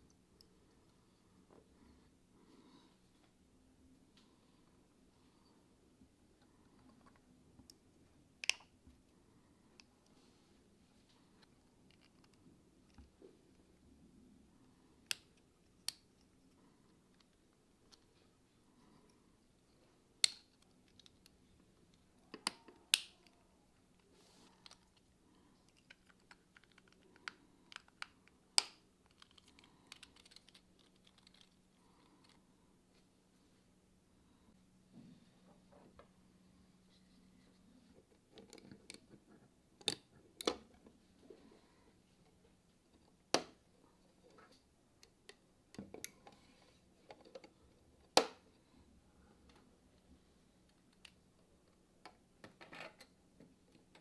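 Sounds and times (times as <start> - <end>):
plastic parts clicking and tapping: 25.7 - 31.6, 38.1 - 40.7
plastic parts clicking and knocking: 38.1 - 40.7.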